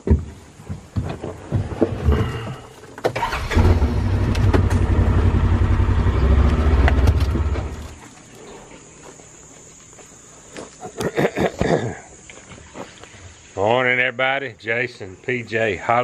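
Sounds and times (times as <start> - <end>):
farm vehicle engine rumbling: 3.2 - 8.0.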